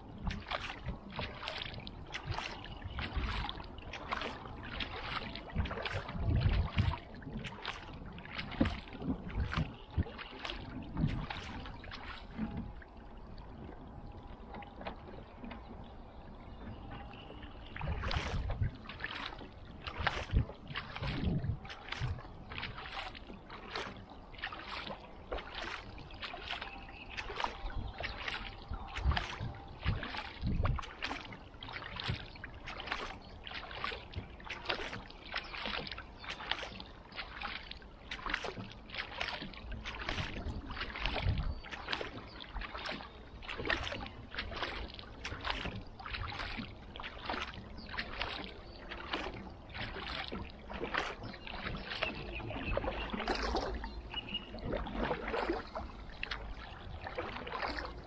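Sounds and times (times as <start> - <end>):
paddle strokes splashing water: 0.0 - 58.0
water dripping and gurgling: 0.0 - 58.0.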